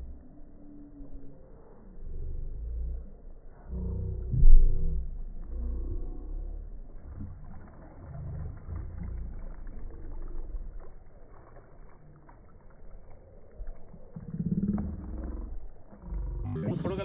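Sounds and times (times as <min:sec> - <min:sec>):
water lapping against boat hull: 0:06.8 - 0:16.1
wind on microphone: 0:13.0 - 0:17.0.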